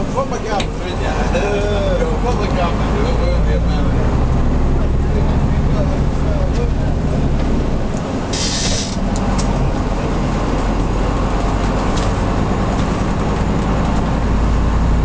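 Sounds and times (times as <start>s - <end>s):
diesel engine running: 0.0s - 15.0s
short hiss: 8.3s - 9.0s.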